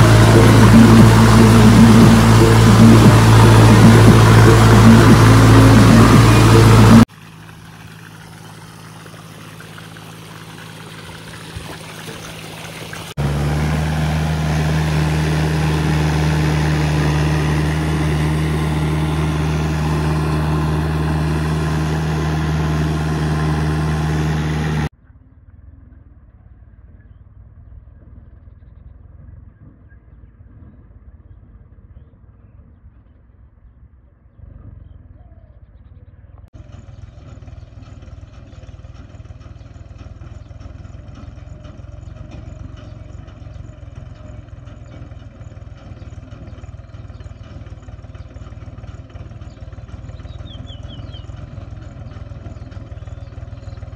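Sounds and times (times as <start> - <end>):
tractor diesel engine running: 0.0 - 24.9, 36.6 - 53.9.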